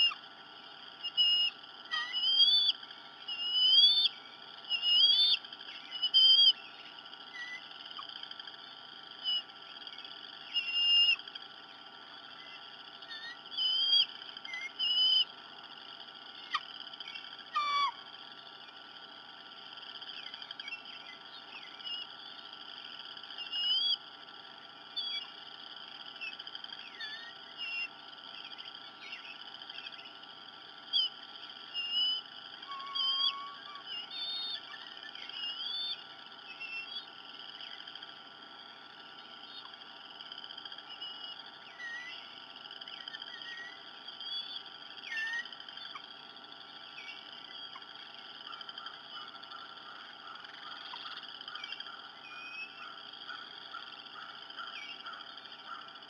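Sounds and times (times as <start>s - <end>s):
bird chirps and whistles: 0.0s - 0.2s, 1.0s - 8.1s, 9.2s - 11.2s, 12.4s - 15.3s, 16.4s - 18.0s, 20.1s - 22.2s, 23.4s - 24.0s, 24.9s - 25.3s, 26.2s - 30.2s, 30.9s - 37.1s, 40.9s - 46.0s, 47.0s - 47.9s, 50.7s - 52.9s.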